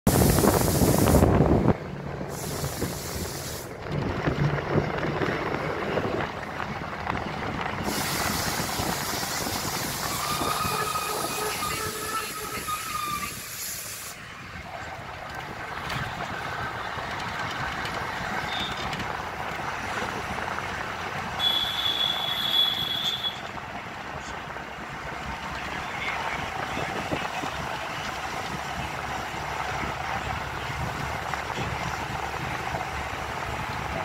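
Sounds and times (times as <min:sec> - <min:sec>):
bus road and engine noise: 0:00.0 - 0:34.0
brake squeals: 0:07.7 - 0:20.6, 0:21.3 - 0:23.6.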